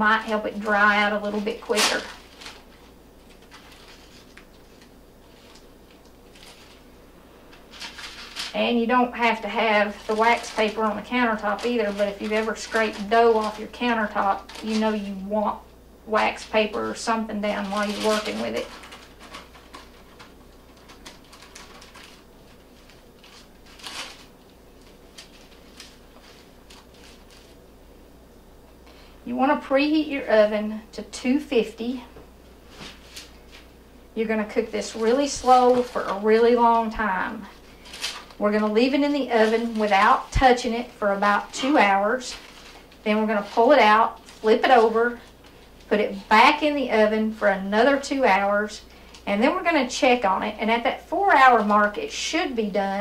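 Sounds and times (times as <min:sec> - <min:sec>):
wax paper crackling: 0:00.0 - 0:28.0, 0:31.8 - 0:53.0
soft handling sounds: 0:17.5 - 0:27.6, 0:32.6 - 0:33.7.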